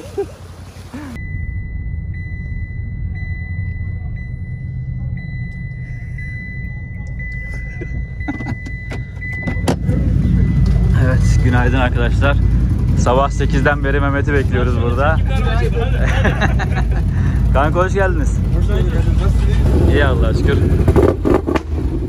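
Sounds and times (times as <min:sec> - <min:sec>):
vehicle engine running: 0:00.4 - 0:22.0
high-pitched tone with ticks: 0:01.2 - 0:09.4.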